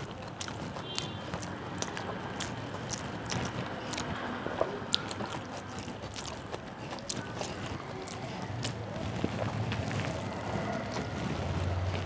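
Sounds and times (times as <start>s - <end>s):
fingers mixing food on metal plate: 0.0s - 12.0s
wet chewing with mouth clicks: 0.0s - 12.0s.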